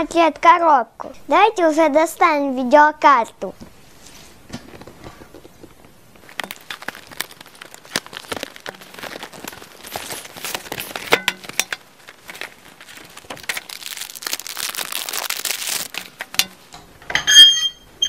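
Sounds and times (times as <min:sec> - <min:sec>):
plastic wrapping crinkling: 0:04.4 - 0:16.6.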